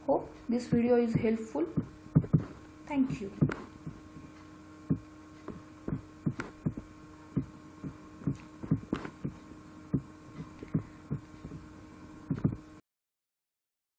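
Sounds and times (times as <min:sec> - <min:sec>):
low electrical hum: 0:00.0 - 0:12.8.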